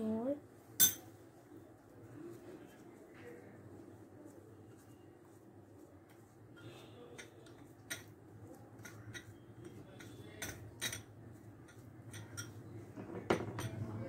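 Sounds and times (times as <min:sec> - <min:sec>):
hands kneading soft dough: 0:00.0 - 0:13.0
bowls and tray knocking together: 0:12.1 - 0:13.8.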